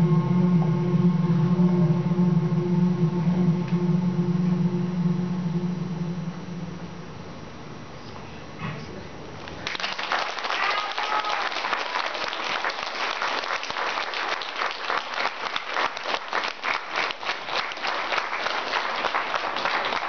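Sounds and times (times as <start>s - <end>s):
audience applauding: 9.5s - 20.0s.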